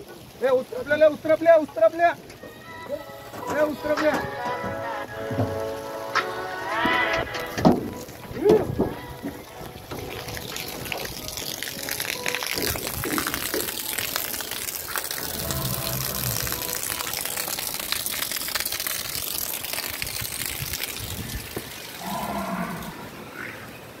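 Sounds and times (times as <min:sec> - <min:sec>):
water buffalo lowing: 0:22.0 - 0:23.6.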